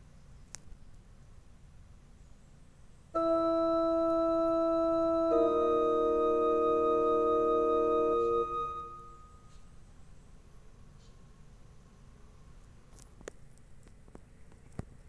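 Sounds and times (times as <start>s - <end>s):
keyboard chords held: 3.2s - 9.4s.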